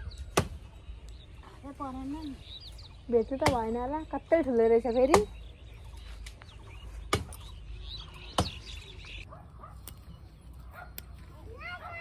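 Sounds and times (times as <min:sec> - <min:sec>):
birds chirping: 0:00.0 - 0:12.0
branches being chopped: 0:00.3 - 0:00.7, 0:03.3 - 0:03.9, 0:05.0 - 0:05.4, 0:06.1 - 0:07.5, 0:08.3 - 0:08.7.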